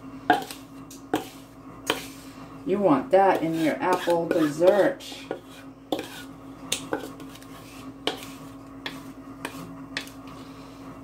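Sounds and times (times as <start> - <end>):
steady low hum: 0.0 - 11.0
utensil scraping a mixing bowl: 0.3 - 10.6.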